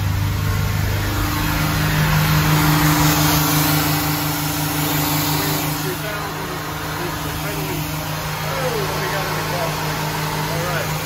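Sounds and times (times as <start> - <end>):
boat engines running: 0.0 - 11.0.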